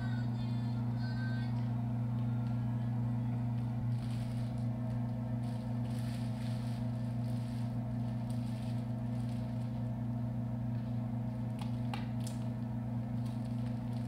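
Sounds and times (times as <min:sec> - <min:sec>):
low electrical hum: 0:00.0 - 0:14.0
crinkly rustles: 0:03.8 - 0:09.9, 0:13.2 - 0:14.0.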